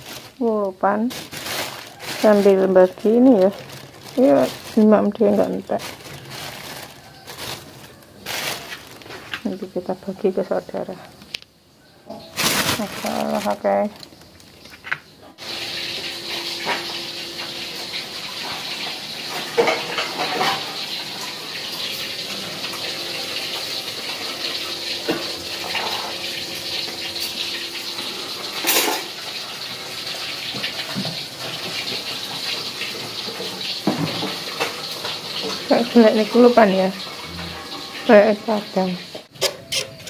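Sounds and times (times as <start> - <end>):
water running from a tap: 1.7 - 8.8, 15.4 - 40.0
dishes clinking: 19.3 - 20.9, 25.0 - 27.4, 28.6 - 29.2.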